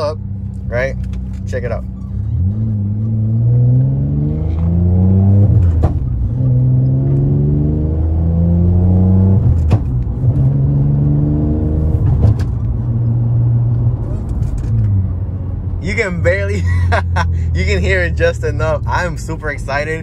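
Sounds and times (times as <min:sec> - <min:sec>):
car engine accelerating: 0:00.0 - 0:20.0.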